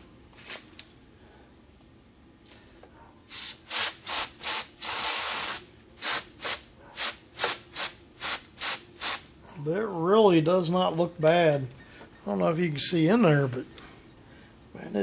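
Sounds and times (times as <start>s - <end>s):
aerosol spray hissing: 3.3s - 9.2s.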